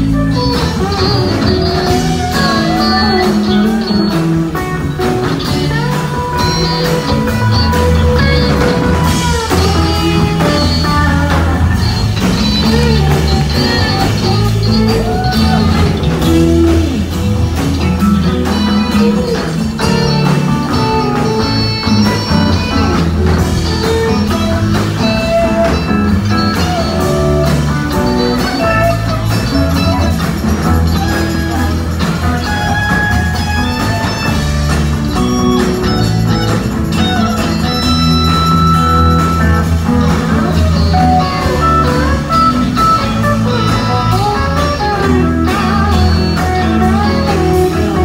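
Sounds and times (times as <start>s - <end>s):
bass guitar: 0.0s - 48.0s
drums: 0.0s - 48.0s
electric guitar lead: 0.0s - 48.0s.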